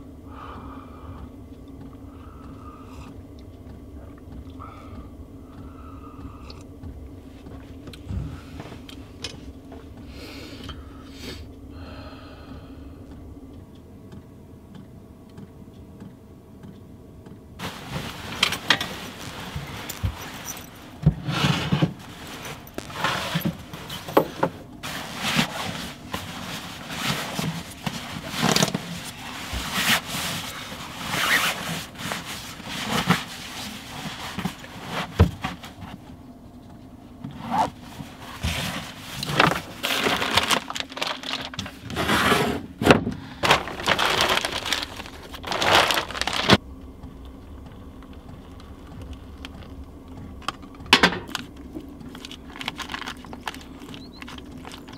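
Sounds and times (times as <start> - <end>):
fabric rustling: 17.6 - 24.2, 24.8 - 35.8, 37.4 - 42.3, 43.3 - 46.6
zip-like scrapes: 31.0 - 31.7.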